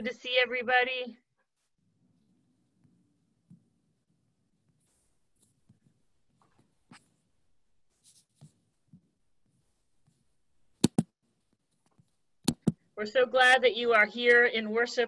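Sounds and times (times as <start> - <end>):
soft rustles: 4.6 - 7.3, 7.9 - 10.3
computer mouse clicking: 11.7 - 12.8.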